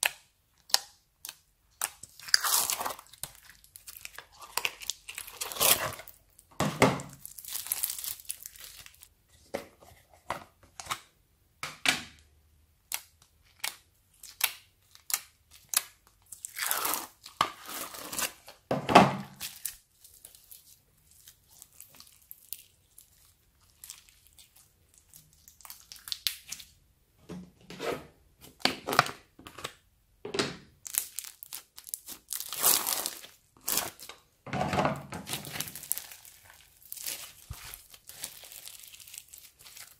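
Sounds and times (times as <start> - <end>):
bead-filled slime squishing: 7.2 - 9.1, 19.4 - 26.8, 30.9 - 34.1, 35.3 - 39.9.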